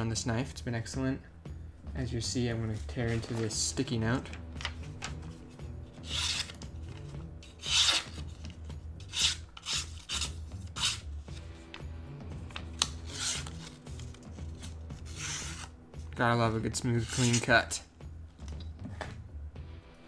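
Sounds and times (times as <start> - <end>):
knife slicing paper: 6.0 - 6.6, 7.5 - 8.3, 9.0 - 11.4, 12.9 - 15.7, 16.9 - 17.5.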